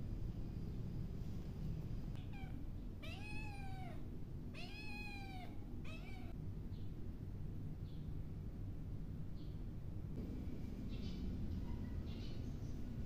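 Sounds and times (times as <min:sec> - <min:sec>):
kitten meowing: 0:02.2 - 0:04.0, 0:04.6 - 0:06.4.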